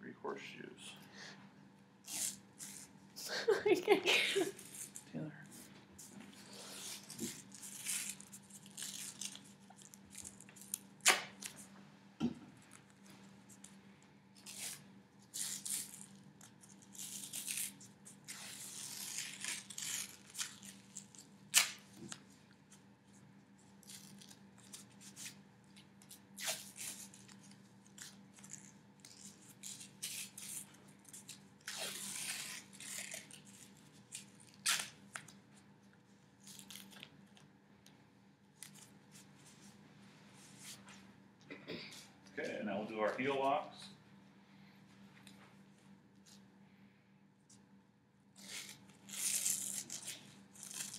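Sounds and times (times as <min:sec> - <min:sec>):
tape being pulled and torn: 0:02.0 - 0:02.9, 0:06.0 - 0:11.7, 0:14.4 - 0:22.2, 0:23.8 - 0:35.4, 0:36.4 - 0:37.4, 0:38.6 - 0:39.3, 0:48.4 - 0:50.9.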